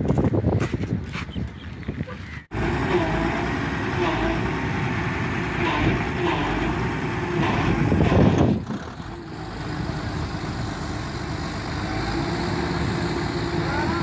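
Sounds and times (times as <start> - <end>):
excavator diesel engine running: 2.4 - 14.0.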